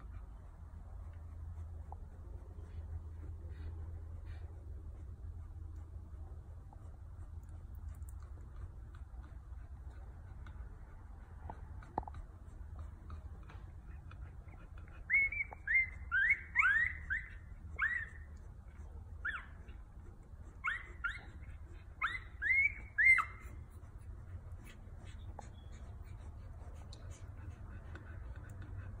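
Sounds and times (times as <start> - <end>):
puppies squeaking: 11.5 - 29.0.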